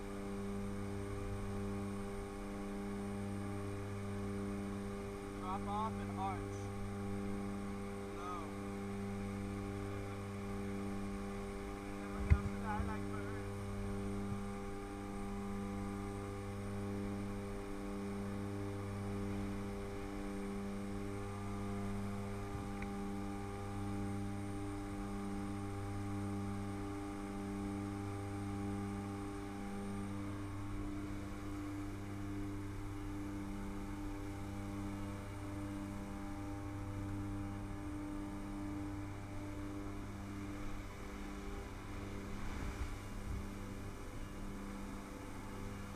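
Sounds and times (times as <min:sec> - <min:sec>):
aircraft engines and propellers droning: 0:00.0 - 0:45.9.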